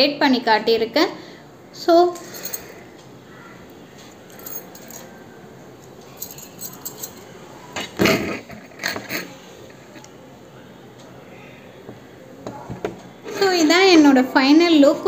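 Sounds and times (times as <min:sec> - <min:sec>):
bangles clattering: 0:02.1 - 0:02.8, 0:04.1 - 0:07.4
bangles clinking and jangling: 0:02.1 - 0:02.8, 0:04.2 - 0:07.4.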